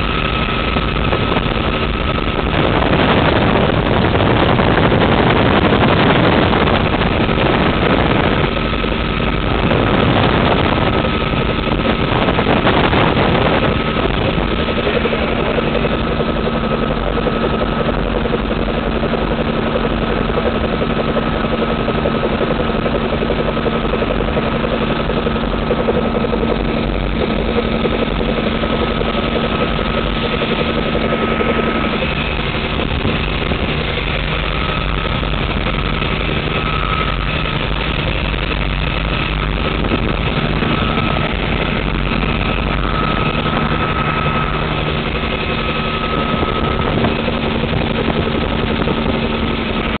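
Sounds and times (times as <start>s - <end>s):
helicopter engine and rotor drone: 0.0s - 50.0s.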